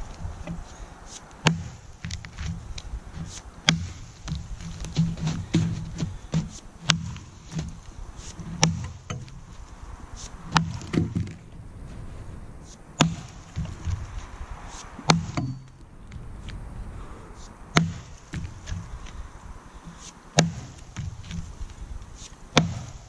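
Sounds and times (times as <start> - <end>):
axe chopping into log: 1.4 - 2.6, 3.2 - 7.8, 8.4 - 9.4, 10.5 - 11.4, 13.0 - 14.1, 14.7 - 15.7, 17.7 - 18.9, 20.0 - 21.4, 22.2 - 23.0.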